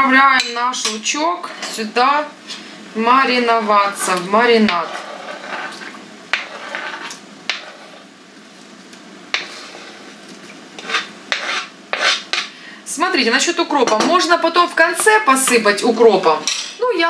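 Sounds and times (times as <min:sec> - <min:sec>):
knife scraping cutting board: 0:04.0 - 0:08.1, 0:09.3 - 0:10.2, 0:10.8 - 0:12.5.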